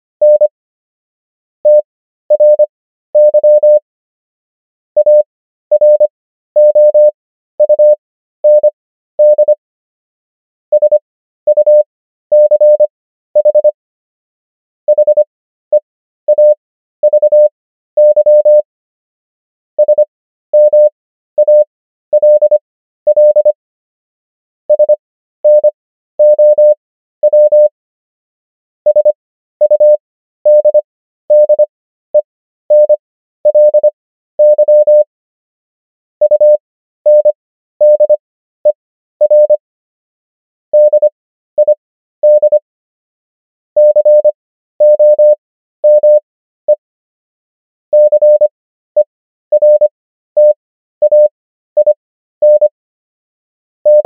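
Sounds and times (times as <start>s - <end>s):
morse code beeps: 0.2s - 0.5s, 1.7s - 3.8s, 5.0s - 9.6s, 10.7s - 13.8s, 14.9s - 18.6s, 19.8s - 23.6s, 24.7s - 27.7s, 28.9s - 31.6s, 32.7s - 35.1s, 36.2s - 39.6s, 40.8s - 42.6s, 43.8s - 46.8s, 48.0s - 52.7s.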